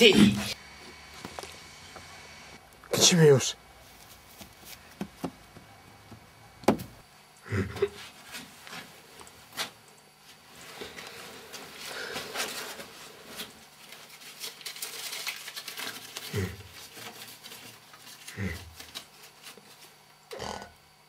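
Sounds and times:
rustling and scraping: 3.8s - 5.7s, 7.9s - 20.1s.

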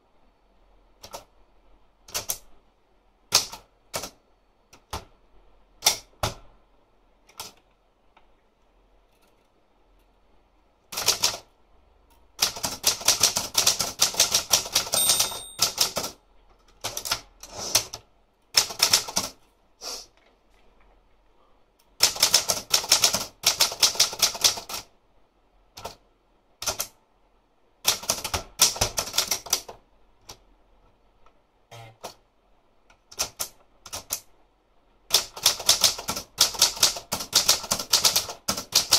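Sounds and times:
typewriter key strikes: 14.8s - 16.1s.

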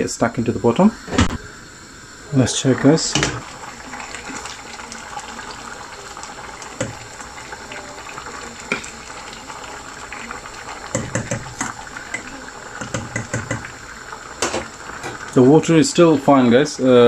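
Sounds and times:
food simmering and bubbling: 1.5s - 17.0s.

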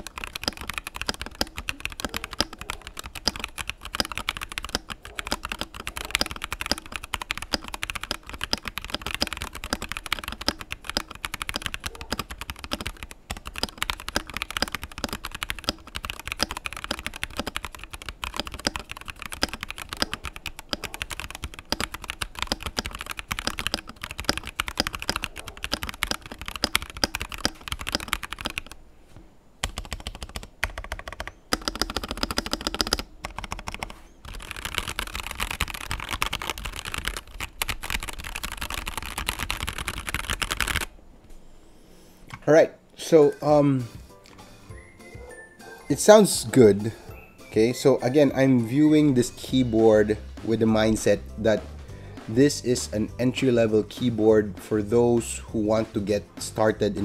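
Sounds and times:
fast typing on mechanical keyboard: 0.0s - 28.8s, 29.6s - 40.9s.

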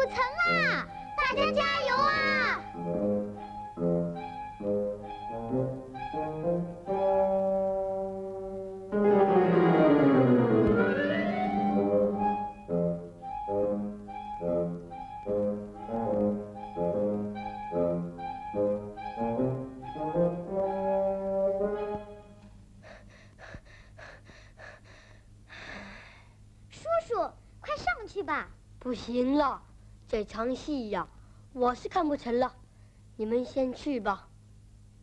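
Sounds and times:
orchestral music with brass: 2.6s - 22.5s.

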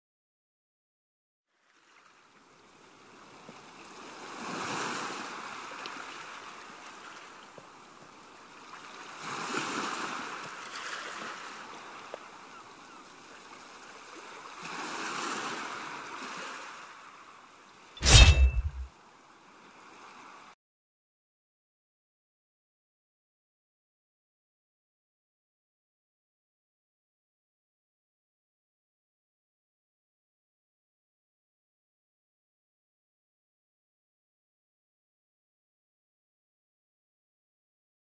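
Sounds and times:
loud thump: 18.0s - 18.9s.

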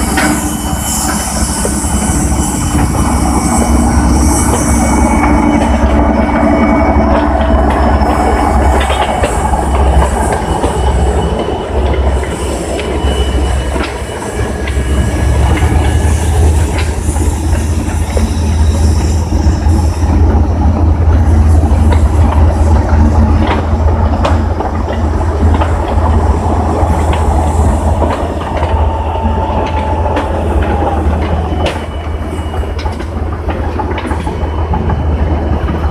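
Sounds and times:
high metal squeals: 0.0s - 20.6s, 25.7s - 35.8s.

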